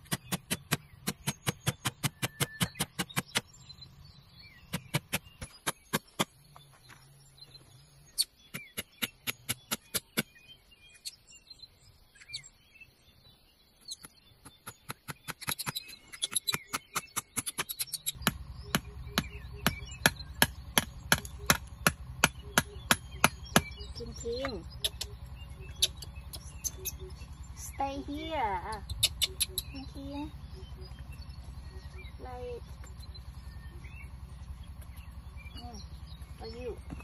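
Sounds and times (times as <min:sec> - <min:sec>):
hammer tapping nails into bamboo: 0:00.0 - 0:03.5.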